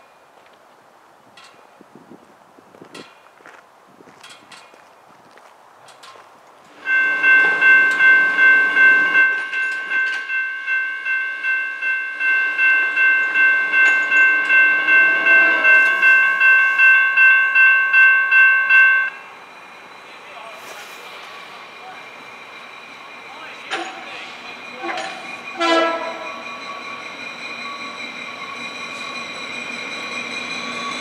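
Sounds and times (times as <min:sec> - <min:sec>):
crossing bell ringing: 0:06.8 - 0:20.0, 0:21.6 - 0:31.0.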